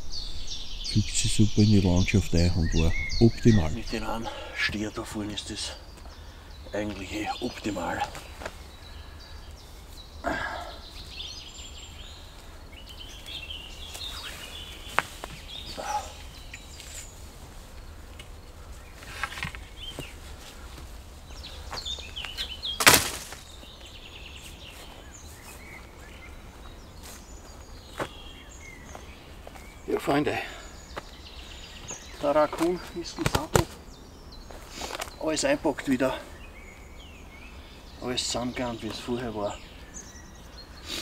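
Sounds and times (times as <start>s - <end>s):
birds chirping: 0.0s - 41.0s
knocks and rustles from tarp: 22.8s - 23.5s.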